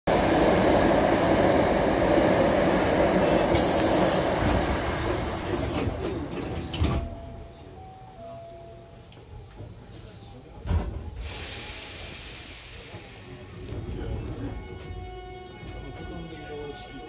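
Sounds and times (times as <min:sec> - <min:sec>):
train passing rumble: 0:00.1 - 0:17.0
sliding doors hissing: 0:03.5 - 0:06.3, 0:11.1 - 0:13.6.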